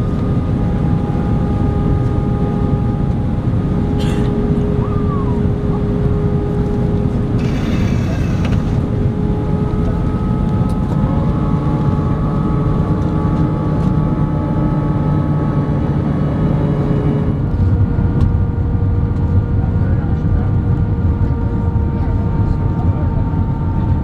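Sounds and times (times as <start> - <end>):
jet engine rumble in cabin: 0.0 - 24.0
low engine tone: 0.0 - 24.0
airflow over fuselage: 2.8 - 11.2.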